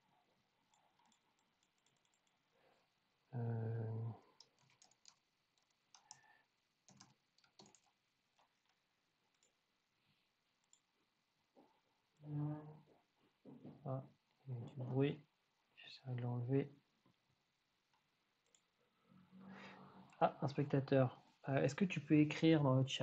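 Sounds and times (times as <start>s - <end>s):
computer keyboard taps: 6.9s - 7.9s.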